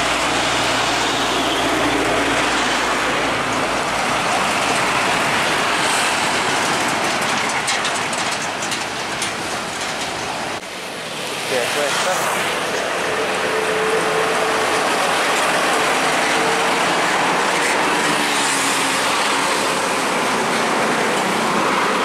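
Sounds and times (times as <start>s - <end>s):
truck passing: 0.0s - 22.0s
trailer rattling clicks: 3.0s - 10.7s.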